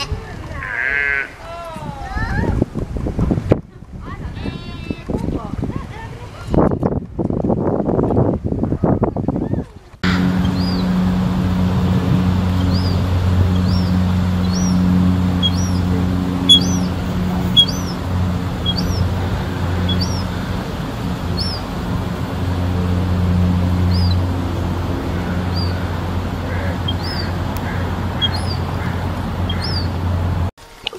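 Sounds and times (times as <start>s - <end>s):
small bird chirping: 10.0s - 21.8s, 23.8s - 24.3s, 25.1s - 30.0s
steady low hum: 10.0s - 30.5s.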